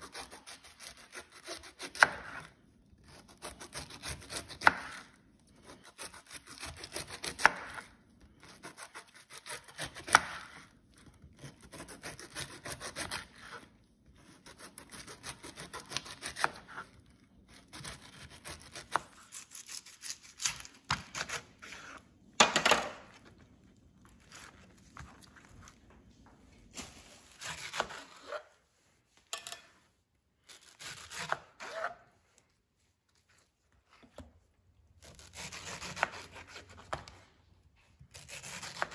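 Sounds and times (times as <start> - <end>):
knife sawing through pineapple: 0.0 - 2.5, 11.4 - 16.8, 17.5 - 22.0, 27.3 - 28.4, 30.5 - 32.0, 35.0 - 36.9, 38.1 - 38.9.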